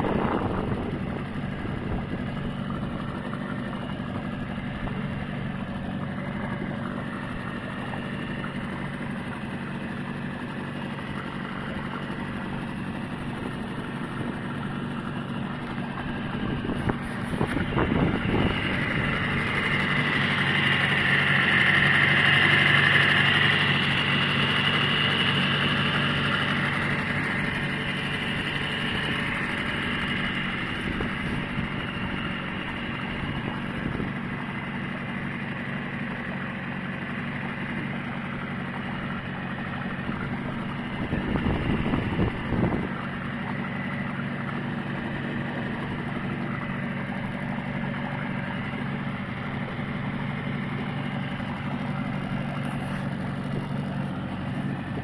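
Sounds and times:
rush of noise: 0:00.0 - 0:02.6
outboard motor running: 0:00.0 - 0:55.0.

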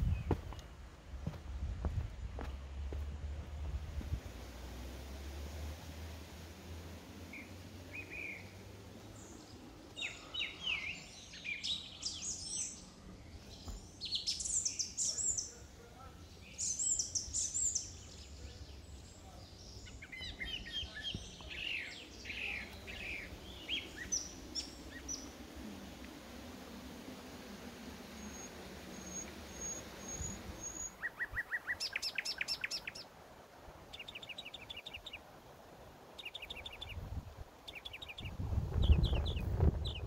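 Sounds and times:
songbird chirps and trills: 0:04.3 - 0:40.0.

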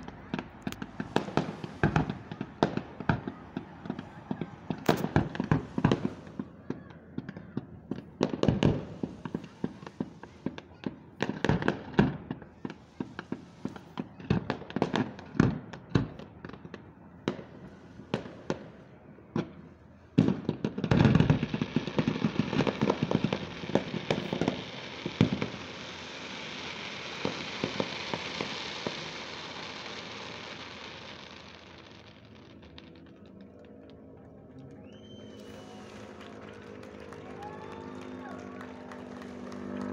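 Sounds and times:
fireworks bangs: 0:00.0 - 0:39.9.

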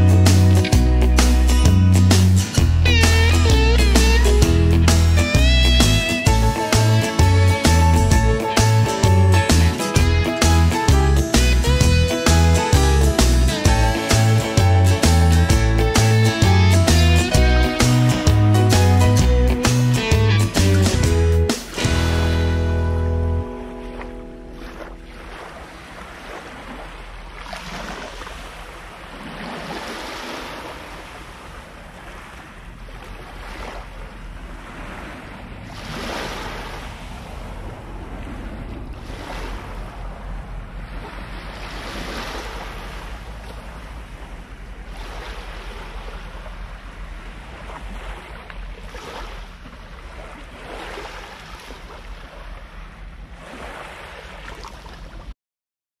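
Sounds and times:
small waves washing onto shore: 0:23.4 - 0:55.3
wind rumbling on microphone: 0:30.8 - 0:50.8.

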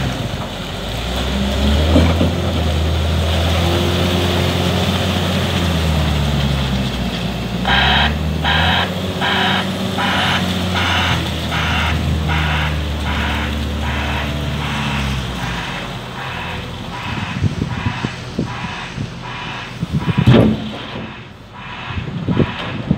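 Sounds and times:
diesel engine running: 0:00.0 - 0:22.9
reversing alarm beeping: 0:07.7 - 0:22.9.

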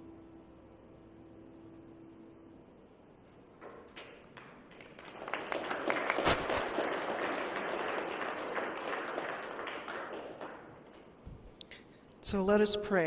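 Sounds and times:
congregation applauding: 0:03.6 - 0:11.2.

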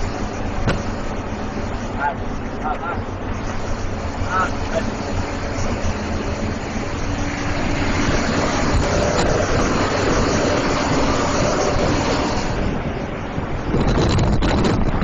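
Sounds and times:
coach engine and road noise: 0:00.0 - 0:15.0.

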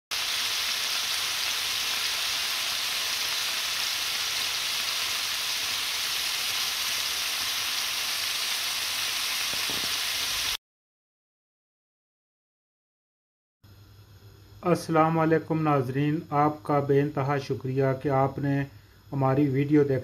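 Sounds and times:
meat sizzling in hot oil: 0:00.1 - 0:10.6.

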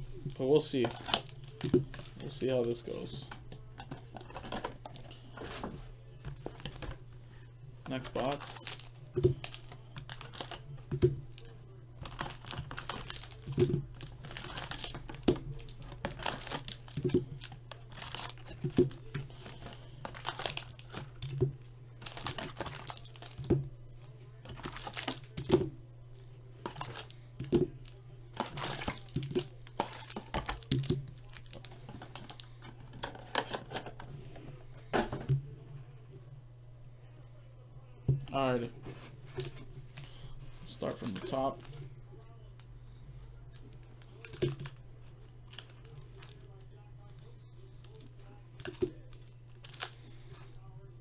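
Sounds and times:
foil packs crinkling: 0:00.2 - 0:05.7, 0:07.9 - 0:25.7, 0:26.6 - 0:34.1, 0:40.0 - 0:41.9, 0:43.5 - 0:50.5
packs tapping on table: 0:28.4 - 0:33.9.

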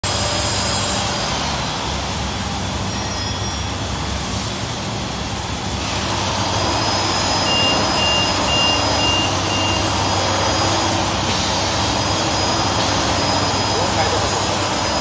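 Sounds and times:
bag making machine humming: 0:00.0 - 0:15.0
short high beeps: 0:07.4 - 0:09.9.

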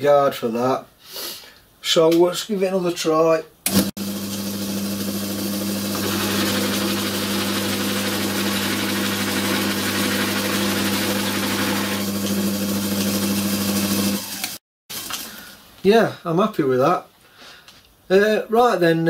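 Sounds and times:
lathe motor humming and whirring: 0:03.7 - 0:14.6.

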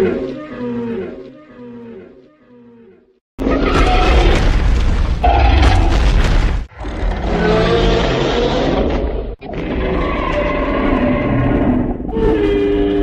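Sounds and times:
creature roars: 0:06.7 - 0:13.0.

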